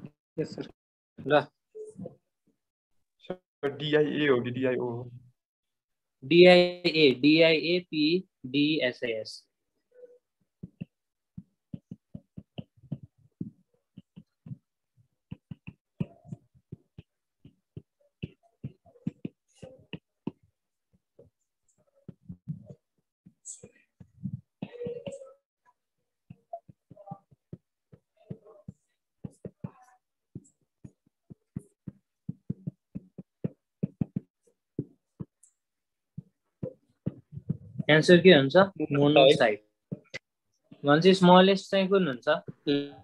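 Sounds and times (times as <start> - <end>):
stylus tapping on pen tablet: 10.6 - 25.3, 26.2 - 37.9.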